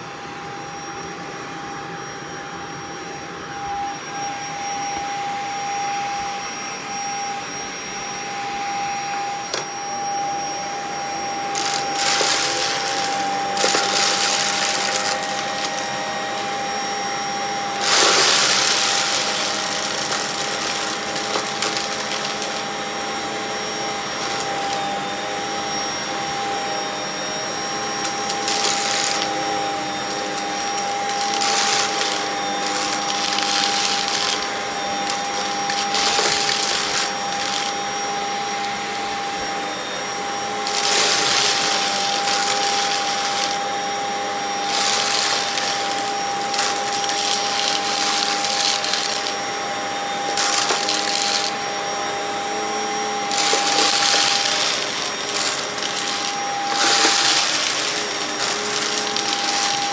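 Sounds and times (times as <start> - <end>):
stick vacuum whining: 0.1 - 59.9
debris rattling up vacuum tube: 11.5 - 16.8, 17.6 - 25.0, 27.8 - 39.1, 40.6 - 43.8, 44.5 - 49.4, 50.2 - 51.7, 53.2 - 59.9.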